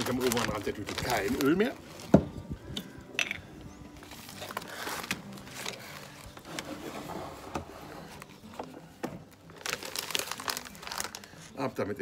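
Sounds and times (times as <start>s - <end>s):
plastic bag rustling: 0.0s - 2.5s, 3.9s - 8.5s, 9.4s - 11.5s.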